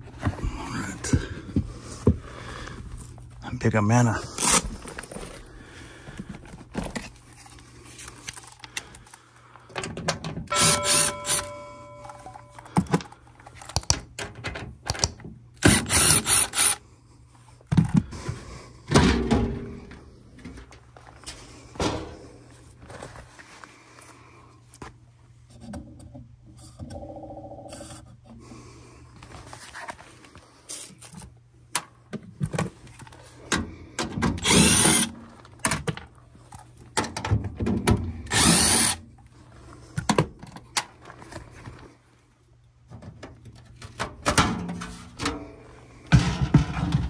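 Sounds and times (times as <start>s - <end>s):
cordless drill running: 10.5s - 11.4s, 15.6s - 16.8s, 34.4s - 35.1s, 38.3s - 39.0s.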